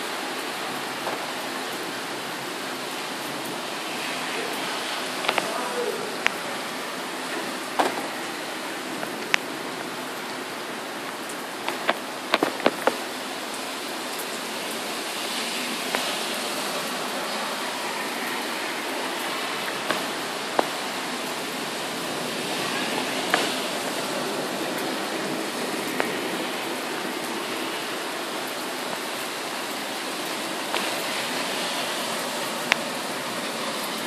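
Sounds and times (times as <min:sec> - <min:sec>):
heavy rain falling: 0:00.0 - 0:34.0.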